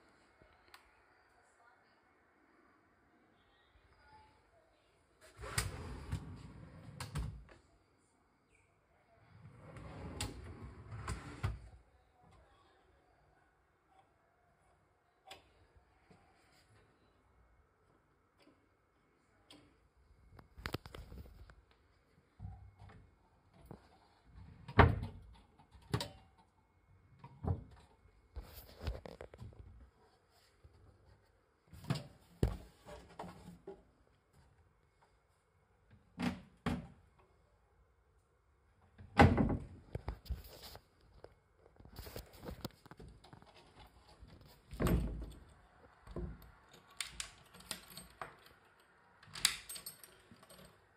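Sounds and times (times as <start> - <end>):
key rattling in lock: 46.9 - 50.9.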